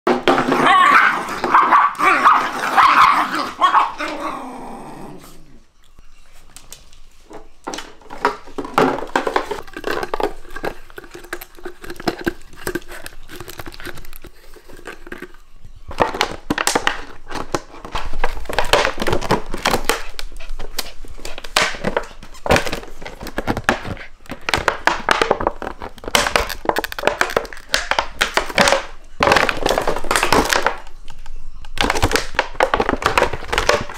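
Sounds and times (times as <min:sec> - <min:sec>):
dogs growling and barking: 0:00.3 - 0:05.8
plastic crinkling clicks: 0:22.4 - 0:33.9.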